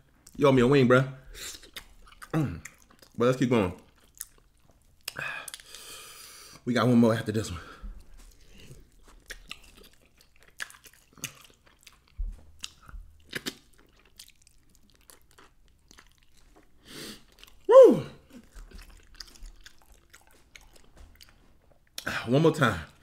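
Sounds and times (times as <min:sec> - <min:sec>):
person chewing wet food: 0:01.3 - 0:03.2, 0:03.8 - 0:06.6, 0:07.8 - 0:22.1
short falling vocal sound: 0:17.7 - 0:18.2.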